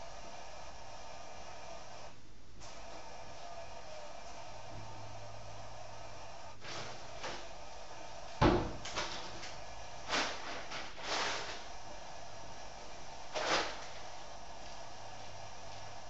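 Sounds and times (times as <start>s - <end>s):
steady hiss: 0.0s - 16.0s
knocks and thumps: 8.4s - 9.4s.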